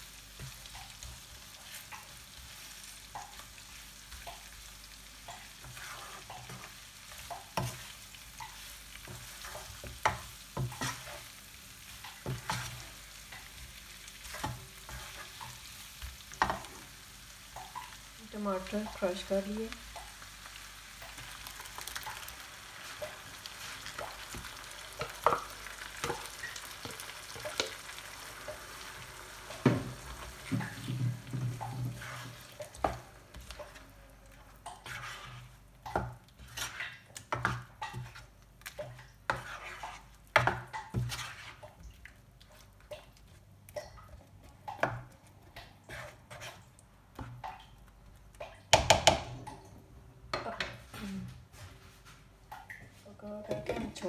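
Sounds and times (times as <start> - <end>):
meat sizzling in oil: 0.0 - 41.8
spatula scraping and knocking pan: 5.5 - 11.3, 12.0 - 16.8, 29.5 - 33.9, 34.7 - 41.8.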